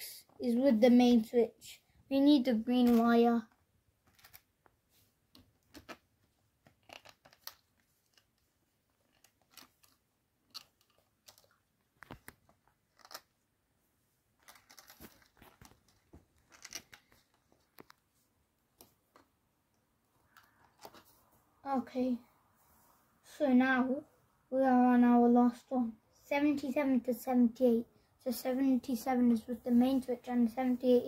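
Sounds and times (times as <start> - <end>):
wire rustling: 4.0 - 13.4, 14.3 - 19.4.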